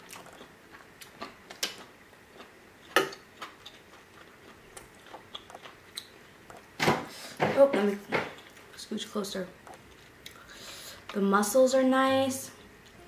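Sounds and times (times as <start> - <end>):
close chewing with wet mouth clicks: 0.0 - 6.7.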